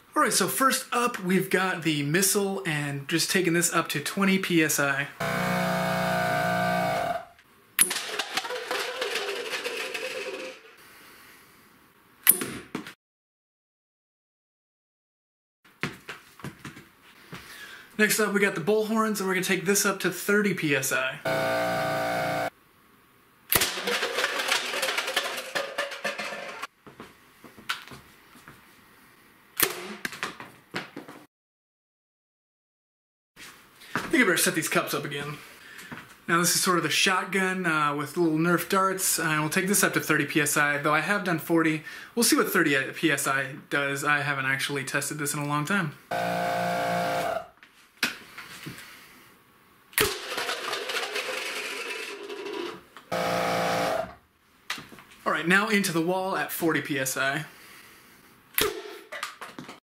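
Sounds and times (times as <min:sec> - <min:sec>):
plastic cups clattering: 0:07.9 - 0:10.7, 0:23.6 - 0:26.7, 0:50.1 - 0:52.8.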